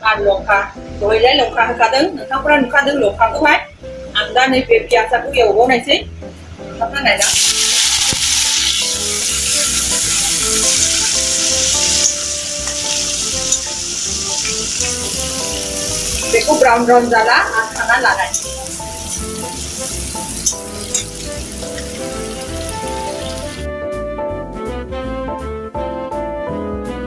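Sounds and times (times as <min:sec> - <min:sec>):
onions sizzling in hot oil: 0:07.2 - 0:23.6
ladle stirring in pan: 0:17.7 - 0:22.0.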